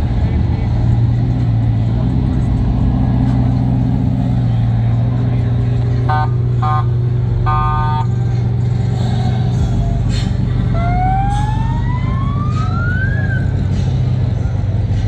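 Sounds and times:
car engine rumbling: 0.0 - 15.0
car horn honking: 6.0 - 8.2.

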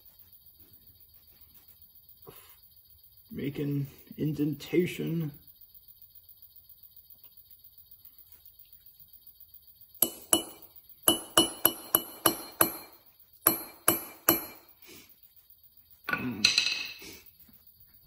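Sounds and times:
hammer striking metal punch: 10.0 - 14.7.

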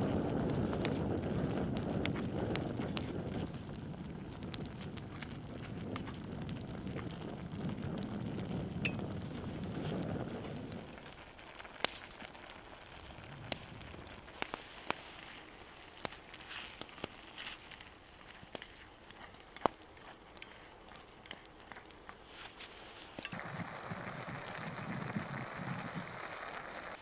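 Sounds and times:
sauce simmering and sizzling: 23.2 - 27.0.

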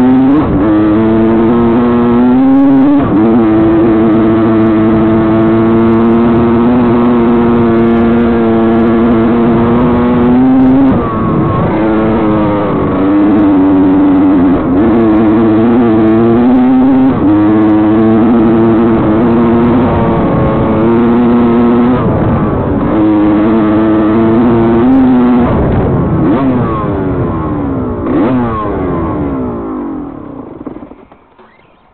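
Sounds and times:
dirt bike engine revving: 0.0 - 31.9.

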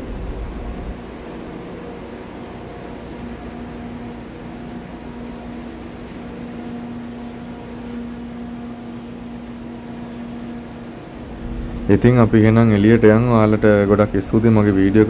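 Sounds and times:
engine-room machinery drone: 0.0 - 15.0.

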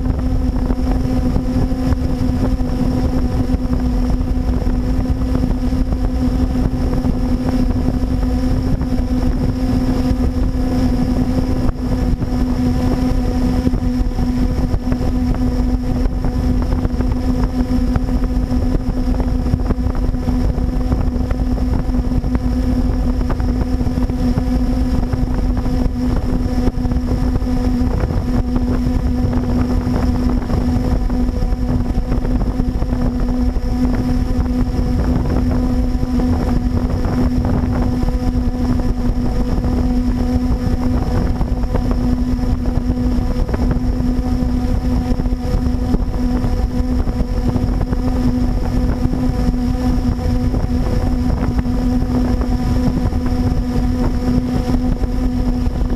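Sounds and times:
quadcopter propellers humming: 0.0 - 55.9
wind rumbling on microphone: 0.0 - 55.9.

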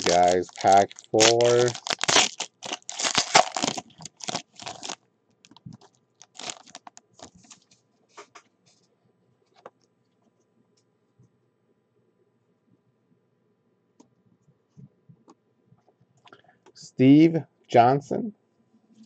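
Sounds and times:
foil pack crinkling: 0.0 - 7.8.

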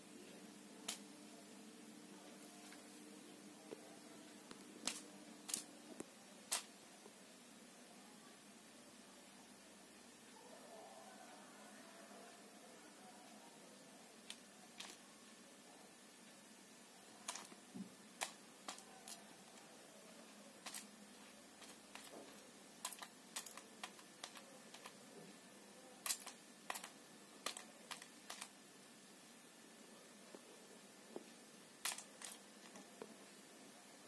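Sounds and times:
beads clicking on tiled floor: 4.8 - 5.7, 6.5 - 6.7, 14.2 - 15.0, 17.2 - 19.6, 20.6 - 25.0, 26.0 - 28.6, 31.8 - 32.9.

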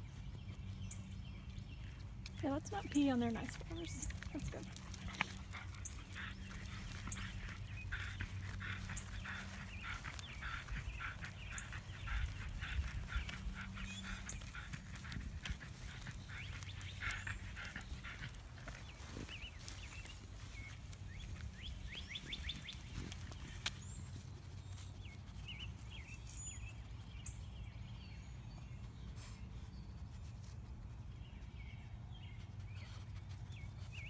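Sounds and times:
dog panting rapidly: 2.4 - 24.2.

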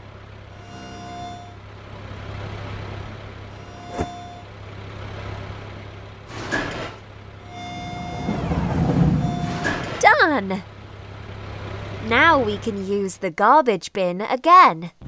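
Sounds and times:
cartoon truck engine hum: 0.0 - 15.0
repeating beep: 3.6 - 4.4, 7.5 - 10.0.

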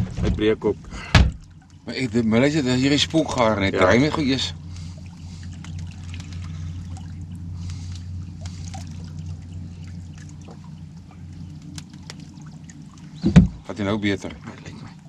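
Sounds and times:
low steady hum: 0.0 - 15.0
water lapping against boat hull: 0.0 - 15.0
faint clicks: 4.7 - 7.0, 7.6 - 13.2.

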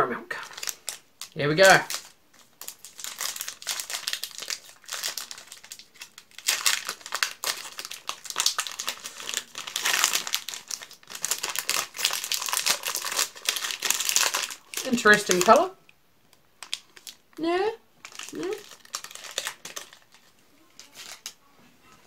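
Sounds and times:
wrapper crinkling and tearing: 0.4 - 15.6, 16.6 - 17.2, 18.0 - 21.4.

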